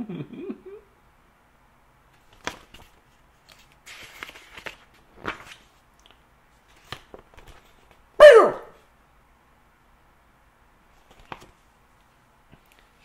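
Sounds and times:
sharp clicks of pages: 0:02.1 - 0:08.0, 0:11.0 - 0:11.6
book pages rustling: 0:02.1 - 0:08.1, 0:10.9 - 0:13.0.

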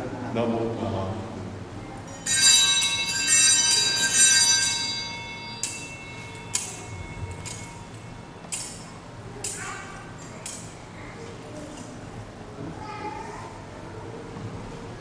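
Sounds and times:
high bells shaken: 0:02.1 - 0:10.8.

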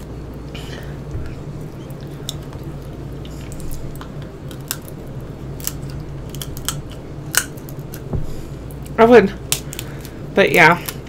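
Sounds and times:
low hum: 0:00.0 - 0:11.0
shell cracking: 0:03.6 - 0:08.1, 0:08.8 - 0:10.2.

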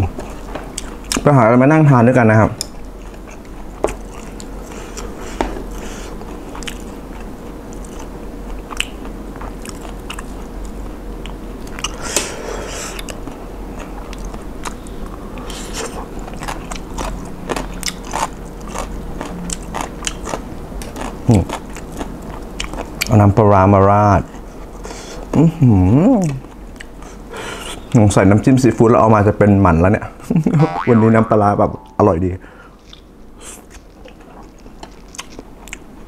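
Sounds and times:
chewing and crunching food: 0:00.1 - 0:01.3, 0:02.6 - 0:27.9, 0:32.7 - 0:36.0
wet mouth sounds: 0:30.6 - 0:32.0.

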